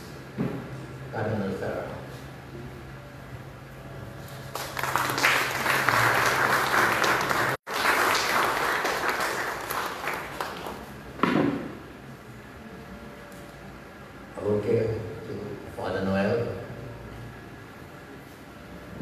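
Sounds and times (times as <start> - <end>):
audience applauding: 4.5 - 10.9.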